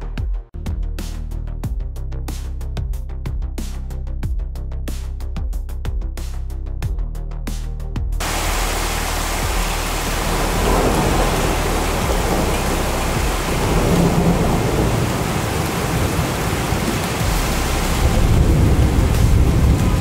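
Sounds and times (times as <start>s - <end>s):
deep rumble: 8.2s - 20.0s
heavy rain pouring: 8.2s - 20.0s.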